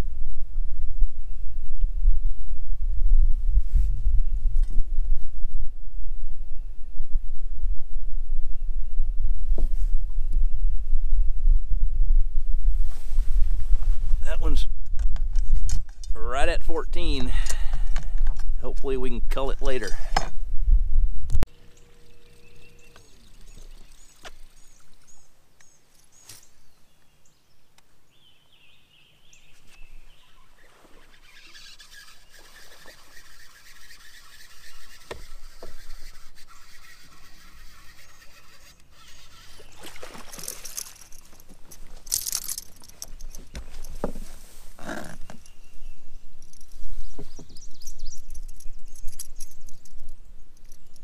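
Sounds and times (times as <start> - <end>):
small birds chirping: 21.5 - 41.5, 42.6 - 44.1, 44.8 - 51.0
fish splashing: 31.8 - 41.2.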